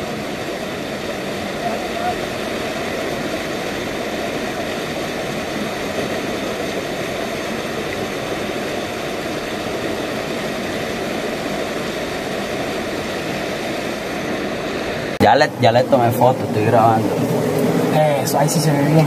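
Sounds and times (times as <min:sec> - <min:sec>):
river water rushing over rocks: 0:00.0 - 0:19.0.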